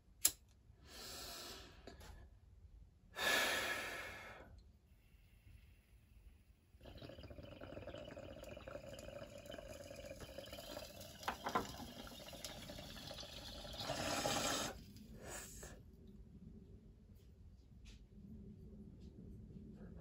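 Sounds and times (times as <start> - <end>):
water bubbling in a bong: 6.8 - 14.8.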